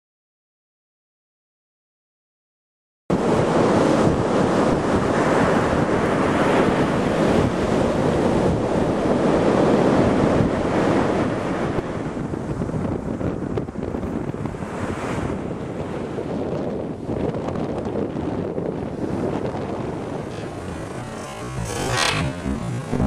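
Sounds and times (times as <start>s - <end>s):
surf breaking on beach: 3.1s - 12.1s, 18.7s - 23.0s
wind buffeting microphone: 3.1s - 23.0s.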